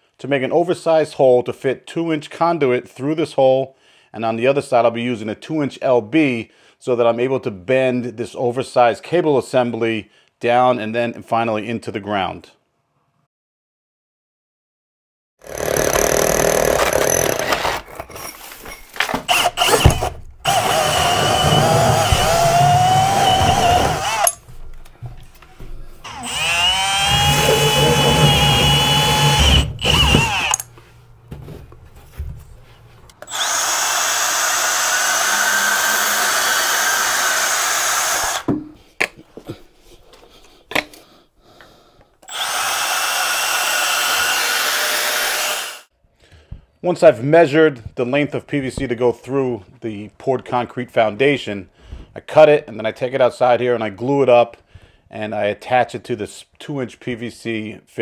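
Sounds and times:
cordless drill motor whine: 0:19.3 - 0:24.4, 0:26.1 - 0:30.7, 0:33.2 - 0:38.5, 0:42.3 - 0:45.9.

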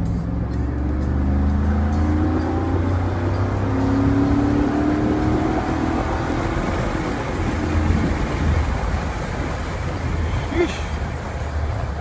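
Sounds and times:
car engine accelerating: 0:00.0 - 0:12.0
low road drone: 0:00.0 - 0:12.0.

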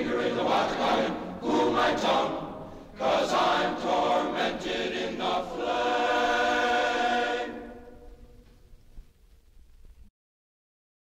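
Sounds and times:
choir singing: 0:00.0 - 0:08.4.

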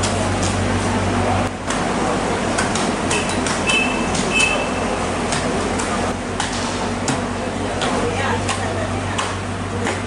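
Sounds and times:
market din: 0:00.0 - 0:10.0
scattered clicks and knocks: 0:02.5 - 0:04.6, 0:05.3 - 0:10.0.

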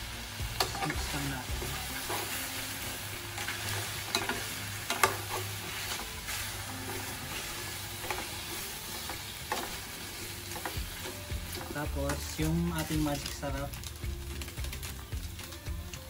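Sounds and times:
meat sizzling in a frying pan: 0:00.0 - 0:16.0
metal spatula scraping a pan: 0:00.6 - 0:13.3.

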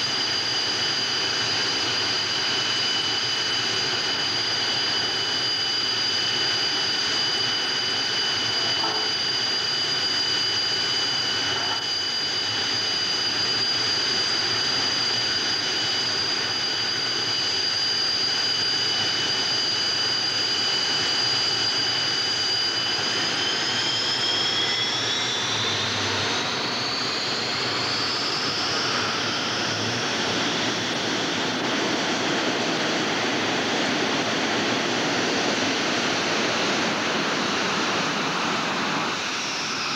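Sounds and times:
jet engine rushing and whining: 0:00.0 - 0:39.9.

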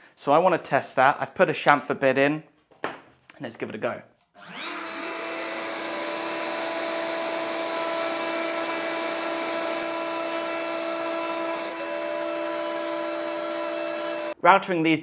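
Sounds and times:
router whining while cutting wood: 0:04.4 - 0:14.4.

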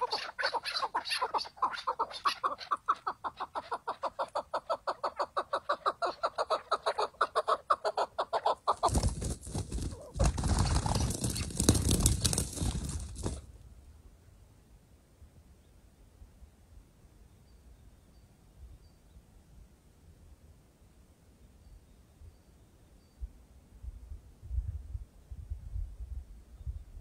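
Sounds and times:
partridge clucking calls: 0:00.0 - 0:12.6.

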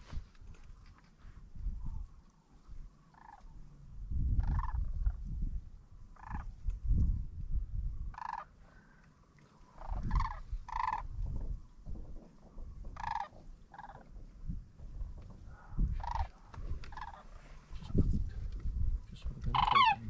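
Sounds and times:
wind buffeting microphone: 0:00.0 - 0:02.9, 0:03.8 - 0:08.4, 0:09.8 - 0:20.0
cranes calling: 0:03.0 - 0:03.7, 0:04.4 - 0:05.2, 0:06.1 - 0:06.6, 0:08.1 - 0:11.6, 0:12.3 - 0:18.0, 0:19.5 - 0:20.0.

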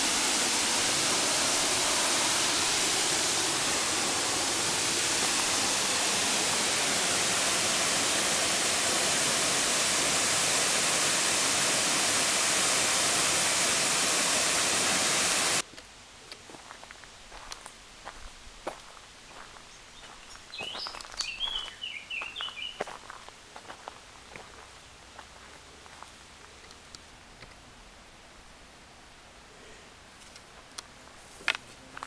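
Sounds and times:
waterfall rushing: 0:00.0 - 0:15.6
quiet woodland background: 0:15.6 - 0:32.0
footsteps on dirt path: 0:16.4 - 0:26.1.

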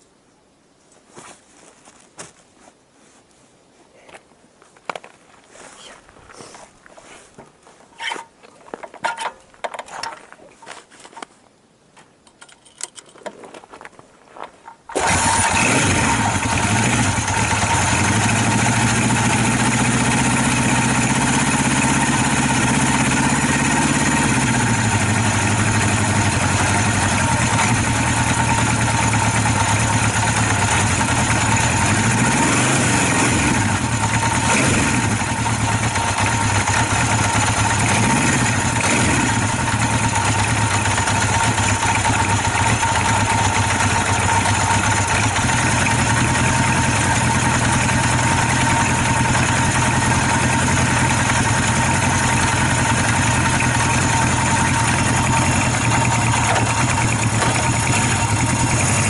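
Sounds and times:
motorcycle engine idling: 0:15.0 - 0:59.0.

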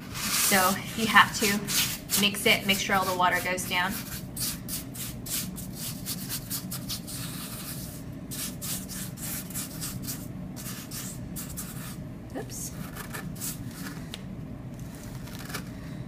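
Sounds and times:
spoon scraping wet sand: 0:00.0 - 0:09.1.

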